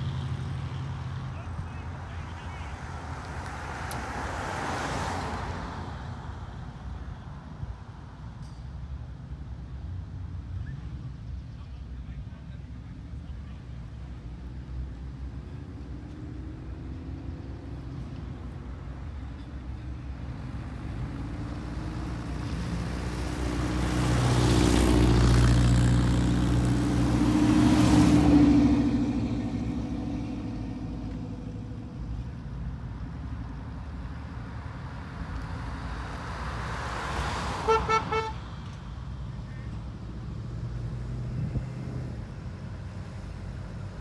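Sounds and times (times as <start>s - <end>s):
car driving past: 2.7s - 6.4s, 20.3s - 32.4s, 33.6s - 39.0s
car horn toots: 37.6s - 38.4s.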